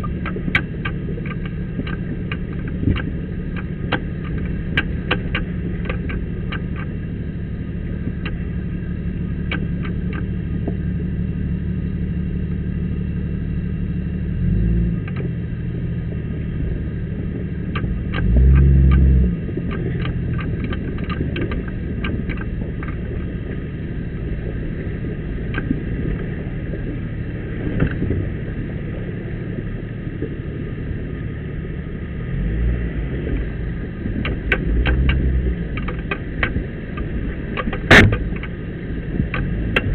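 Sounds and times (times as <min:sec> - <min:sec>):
sharp clicks and knocks: 0:00.0 - 0:08.6, 0:09.2 - 0:10.8, 0:15.0 - 0:15.4, 0:16.7 - 0:31.2, 0:33.2 - 0:39.9
jeep engine rumbling and revving: 0:00.0 - 0:39.9.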